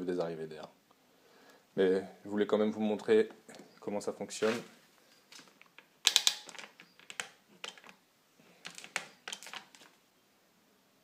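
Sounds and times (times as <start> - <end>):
plastic clicks and taps: 5.4 - 8.0.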